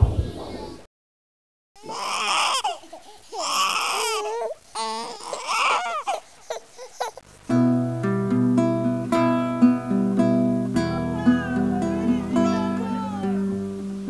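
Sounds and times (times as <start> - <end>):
acoustic guitar picked notes: 7.3 - 14.0
sliding high melody line: 10.5 - 14.0.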